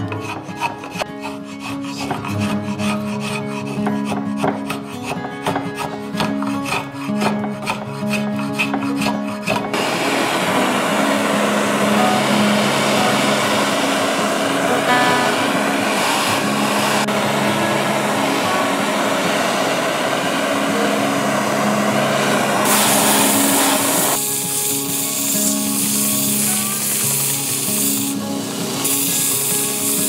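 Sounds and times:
file rasping wood: 0:00.0 - 0:09.9
background music: 0:00.0 - 0:30.0
gas torch flame hissing: 0:06.5 - 0:30.0.

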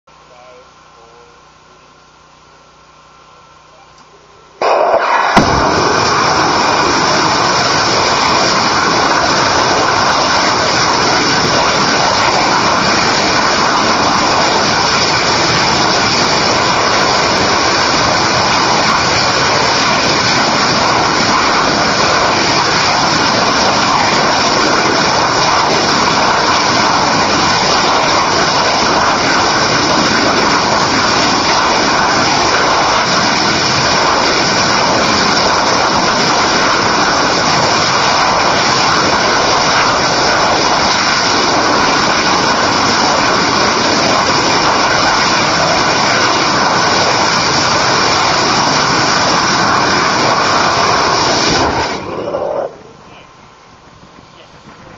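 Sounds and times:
rocket engine firing: 0:04.6 - 0:53.2.

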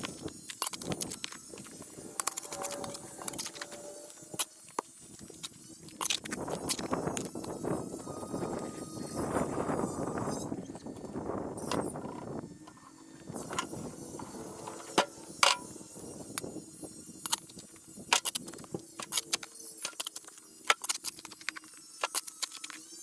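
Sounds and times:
shovel scraping soil: 0:00.0 - 0:07.5
faint steady hum: 0:00.0 - 0:23.0.

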